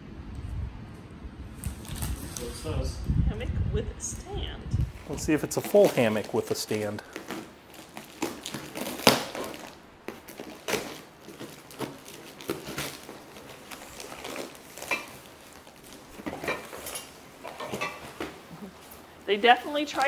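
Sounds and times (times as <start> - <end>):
cardboard rustling and tearing: 1.6 - 2.6, 5.0 - 19.1.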